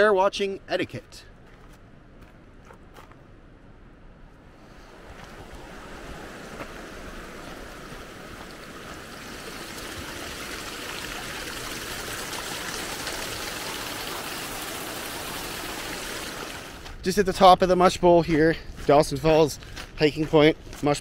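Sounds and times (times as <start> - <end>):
rushing river whitewater: 4.6 - 16.9.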